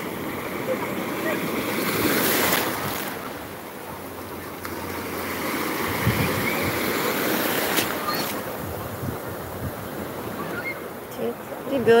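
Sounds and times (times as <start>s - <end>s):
small waves breaking on shore: 0.0s - 12.0s
wind gusting on microphone: 5.8s - 12.0s.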